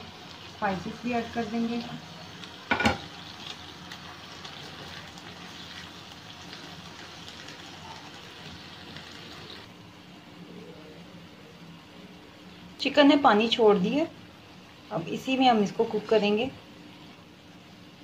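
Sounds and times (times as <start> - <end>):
chicken sizzling in oil: 0.0 - 9.7.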